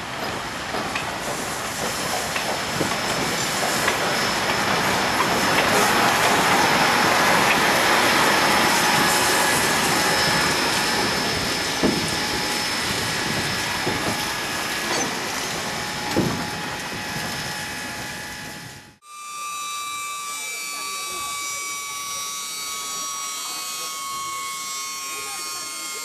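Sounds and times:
steam locomotive hiss and rumble: 0.0s - 26.0s.

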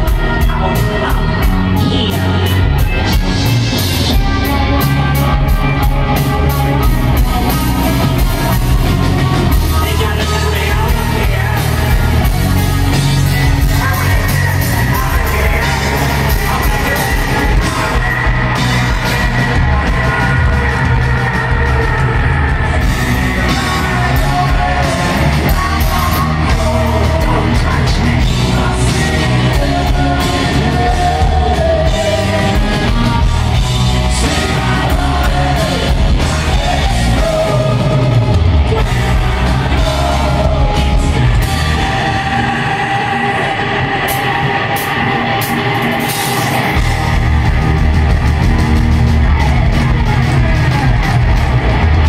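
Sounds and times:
live hard rock band: 0.0s - 52.0s
male lead vocal: 0.0s - 52.0s.

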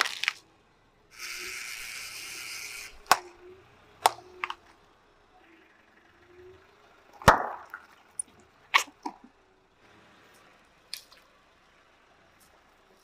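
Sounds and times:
plastic containers bursting under tyre: 7.2s - 8.0s.

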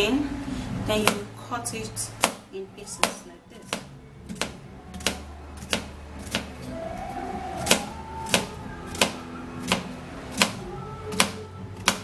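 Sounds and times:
knife chopping on cutting board: 3.0s - 6.5s, 7.7s - 10.6s.

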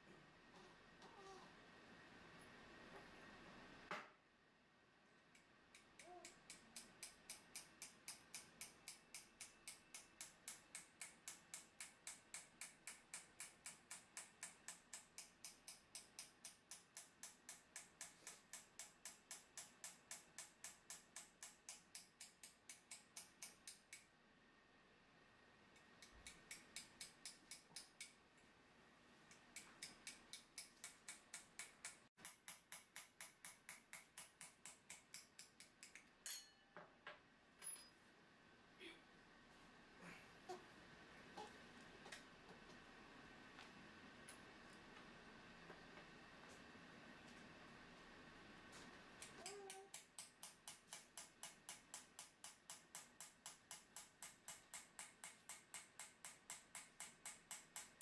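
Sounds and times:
hammer tapping steel chisel: 5.4s - 24.1s, 25.8s - 28.2s, 29.3s - 36.7s, 49.2s - 58.0s.

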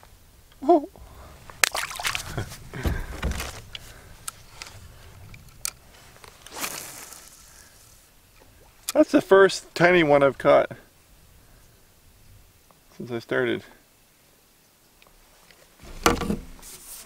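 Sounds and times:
dull thumps against boat: 2.1s - 3.7s, 15.9s - 16.6s.

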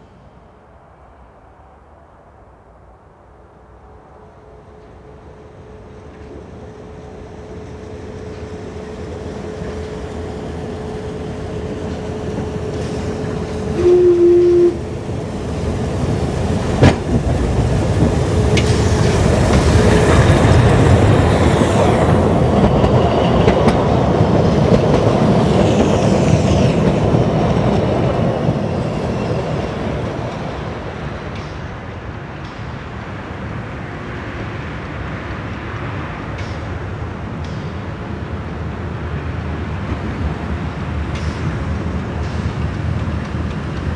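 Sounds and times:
steam train rolling past: 3.2s - 43.9s
locomotive whistle blast: 13.7s - 14.8s.

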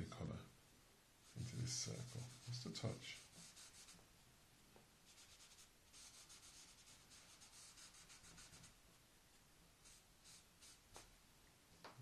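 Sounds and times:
pastel scratching on paper: 1.2s - 4.0s, 5.1s - 8.8s, 9.8s - 10.8s.

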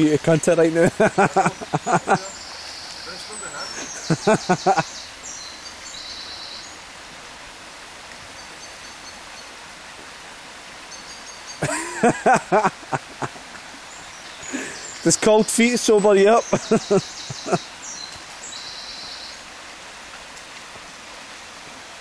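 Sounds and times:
stream water rushing: 0.0s - 22.0s
bird chirps: 1.4s - 6.8s, 13.9s - 19.4s.

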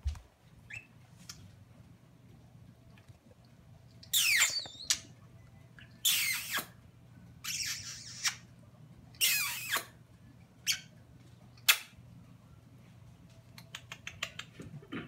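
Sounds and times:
budgerigar chirping: 4.1s - 5.1s, 5.8s - 6.7s, 7.4s - 8.4s.

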